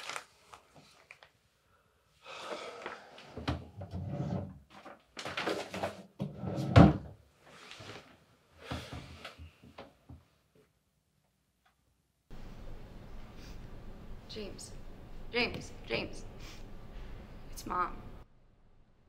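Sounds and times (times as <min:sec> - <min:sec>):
paper rustling and shuffling: 0:00.0 - 0:01.5, 0:04.7 - 0:06.1.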